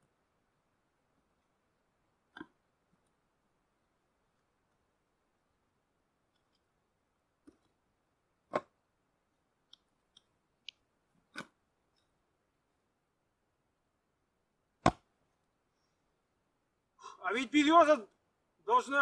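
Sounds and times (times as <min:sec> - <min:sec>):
log thumping on block: 0:14.8 - 0:15.1.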